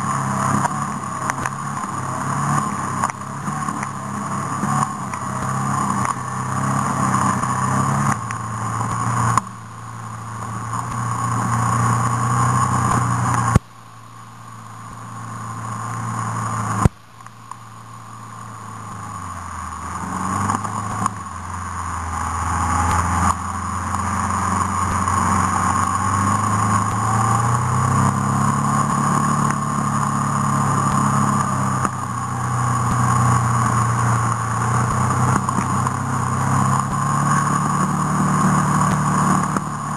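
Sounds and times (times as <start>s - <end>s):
off-road vehicle engine revving: 0.0s - 13.6s, 14.4s - 16.9s, 17.7s - 39.9s.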